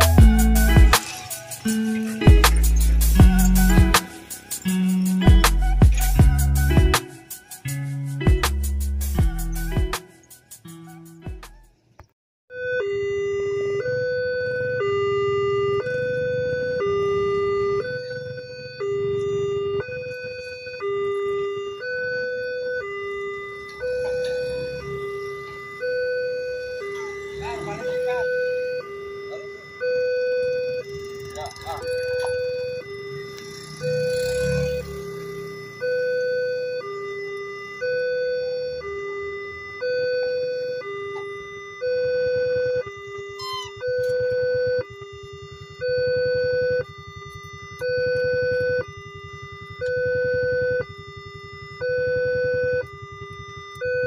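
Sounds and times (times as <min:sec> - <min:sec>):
level crossing two-tone alarm: 0:00.0 - 0:08.4, 0:12.5 - 0:54.0.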